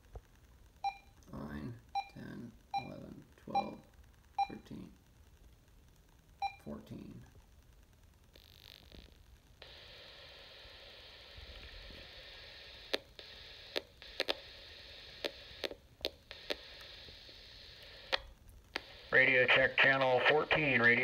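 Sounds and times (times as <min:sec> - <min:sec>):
radio static hiss: 0:06.4 - 0:21.0.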